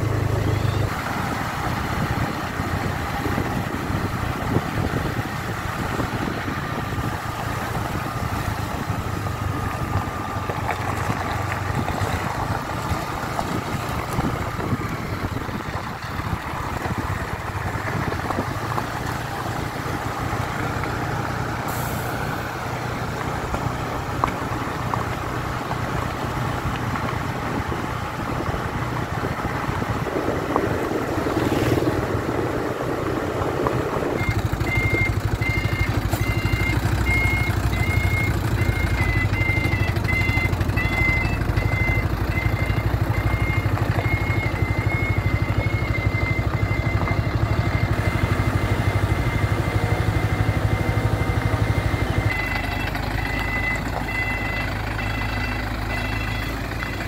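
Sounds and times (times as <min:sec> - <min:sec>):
road rumble: 0:00.0 - 0:57.0
truck engine running: 0:00.0 - 0:57.0.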